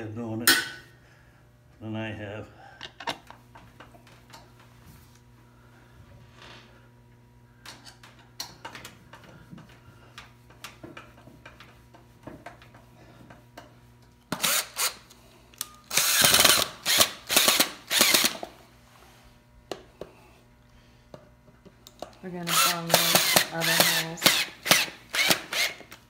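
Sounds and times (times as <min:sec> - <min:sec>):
cordless drill running: 0:14.4 - 0:15.1, 0:15.8 - 0:18.5, 0:22.4 - 0:26.0.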